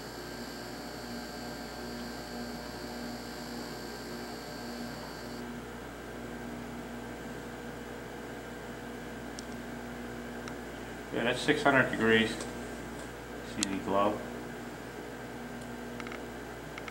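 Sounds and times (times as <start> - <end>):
high-pitched whine: 0.0 - 5.4
electrical hum: 0.0 - 16.9.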